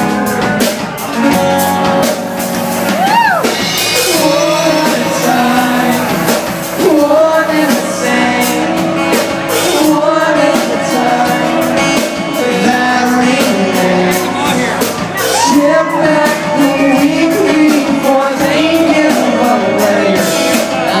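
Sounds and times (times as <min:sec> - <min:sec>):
steady beat: 0:00.0 - 0:09.9
bass: 0:00.0 - 0:21.0
acoustic guitar strumming: 0:00.9 - 0:09.4
man singing: 0:03.4 - 0:21.0.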